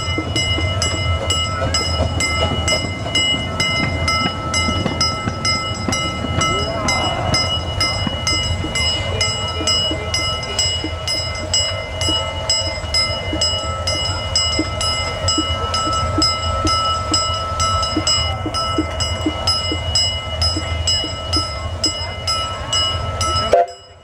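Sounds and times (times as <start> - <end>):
bell ringing: 0.0 - 24.0
steam train rumble: 0.0 - 24.0.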